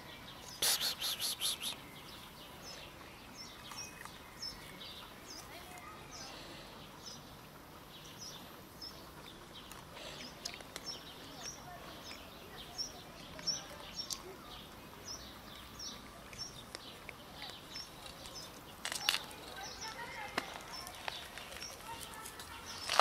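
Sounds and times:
small bird chirping: 0.1 - 6.3.

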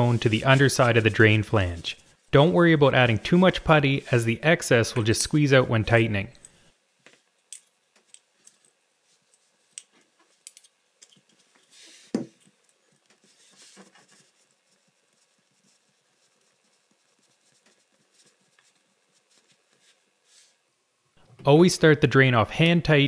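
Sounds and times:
soft rustles: 0.0 - 4.2, 8.0 - 20.6
small handling clicks: 9.7 - 11.4.

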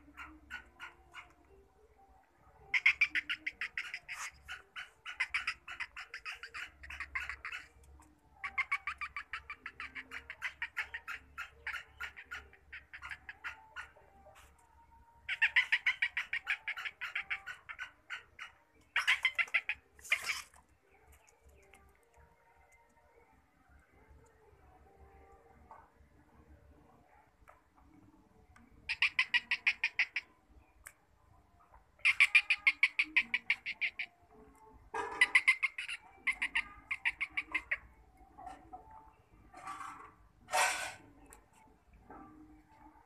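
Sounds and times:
bird chattering calls: 2.7 - 7.8, 8.4 - 14.0, 15.3 - 21.0, 28.8 - 30.4, 32.0 - 34.2, 34.9 - 37.9.

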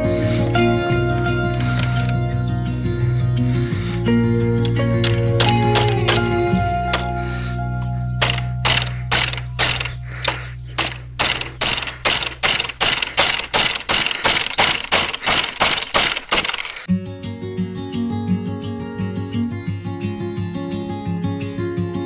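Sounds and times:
rapid hammering: 5.0 - 6.4, 8.2 - 16.9.

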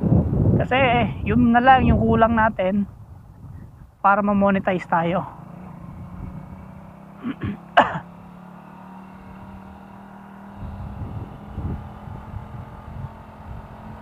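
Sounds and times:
motorcycle engine running: 0.0 - 14.0
low uneven rumbling: 0.4 - 8.1.

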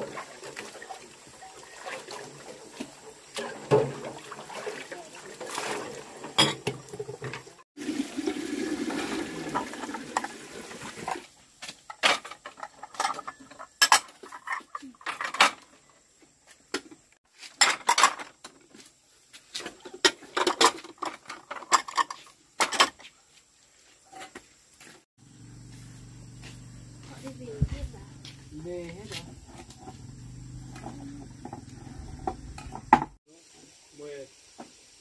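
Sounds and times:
water splashing in sink: 0.0 - 11.3
ceramic bowls clinking: 6.3 - 6.9.

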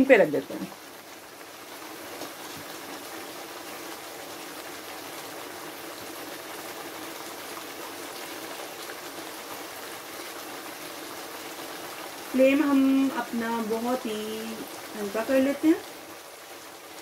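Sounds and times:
curry simmering bubbling: 0.0 - 17.0.

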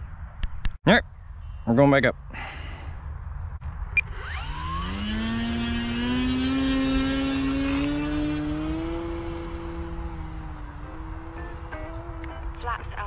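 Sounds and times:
electric model plane motor whine: 3.9 - 12.5.

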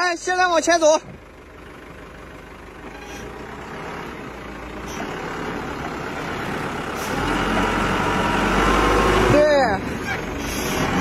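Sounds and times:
wheel loader diesel engine under load: 0.0 - 11.0.

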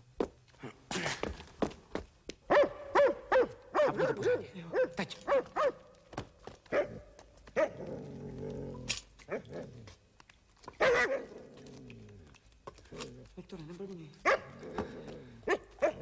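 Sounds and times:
dog barking: 2.5 - 5.8, 6.7 - 7.8, 10.8 - 11.3, 14.2 - 14.6, 15.4 - 16.0
dog growling: 7.7 - 9.9, 14.5 - 15.5.

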